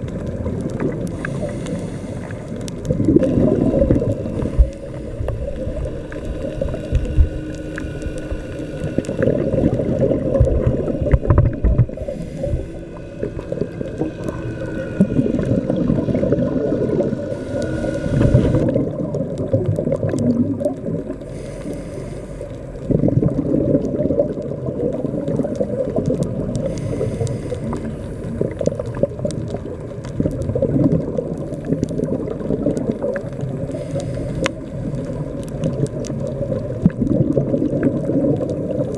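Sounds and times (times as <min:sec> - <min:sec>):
faint clicks: 0:00.0 - 0:15.6, 0:25.2 - 0:38.9
regulator breathing and bubbles: 0:00.0 - 0:38.9.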